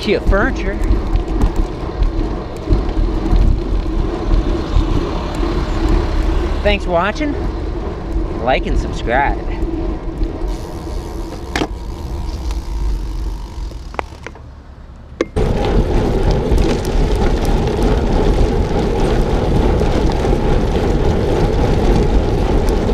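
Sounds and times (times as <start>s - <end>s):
wind rush: 0.0s - 14.3s, 15.4s - 22.9s
bicycle tyre noise: 0.0s - 22.9s.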